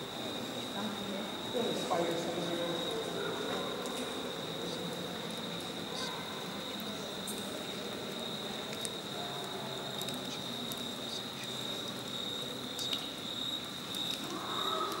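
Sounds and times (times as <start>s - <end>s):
high-pitched insect trill: 0.0s - 15.0s
faint clicks and ticks: 8.1s - 15.0s.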